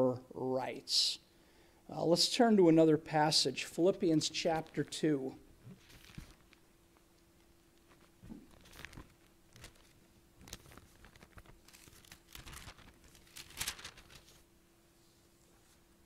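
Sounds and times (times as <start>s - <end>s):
bible pages turning: 4.1s - 5.1s, 5.7s - 6.6s, 7.4s - 14.5s.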